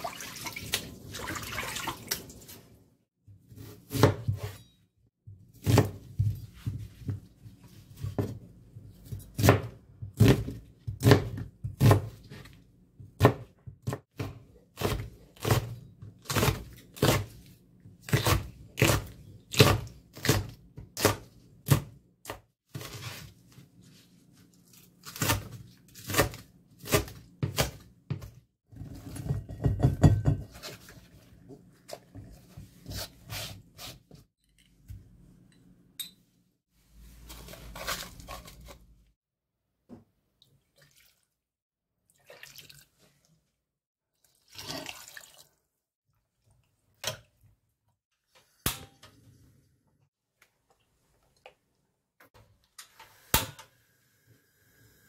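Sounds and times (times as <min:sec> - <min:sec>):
pouring water: 0:00.0 - 0:02.6, 0:40.5 - 0:41.4, 0:42.1 - 0:43.1, 0:44.2 - 0:45.6
knife chopping on plastic board: 0:03.6 - 0:04.5, 0:05.6 - 0:06.4, 0:09.4 - 0:12.4, 0:13.1 - 0:17.3.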